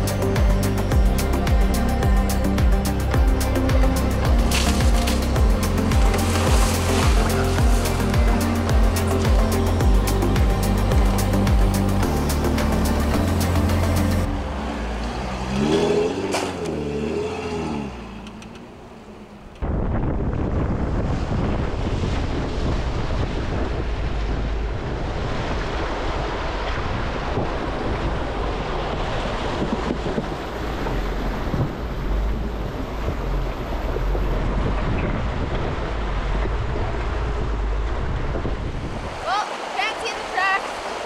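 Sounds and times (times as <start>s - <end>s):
wind on microphone: 0.0s - 12.2s, 19.6s - 41.0s
steady low rumble: 0.0s - 15.4s, 19.4s - 39.2s
water splashing around tyre: 3.8s - 9.8s.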